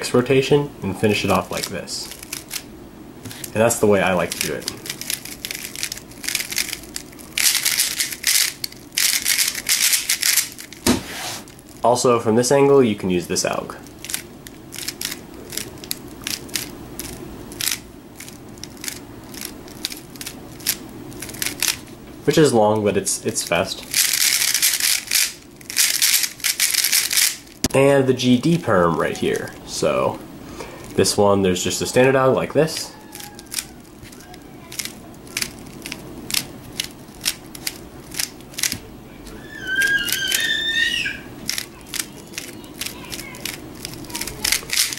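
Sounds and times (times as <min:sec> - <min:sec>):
puzzle cube plastic clicks: 0:04.2 - 0:10.8, 0:14.0 - 0:21.8, 0:23.9 - 0:27.4, 0:33.1 - 0:38.8, 0:41.5 - 0:44.9.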